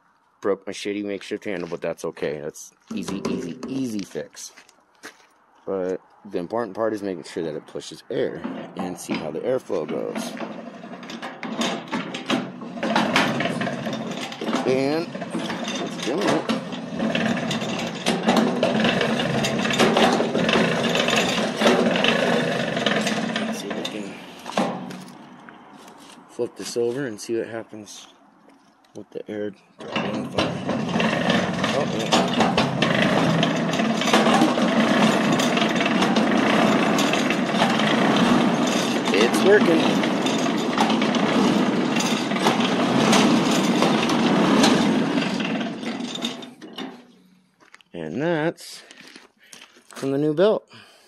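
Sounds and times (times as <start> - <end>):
hand-cranked forge blower whirring: 8.3 - 25.2, 29.8 - 47.3.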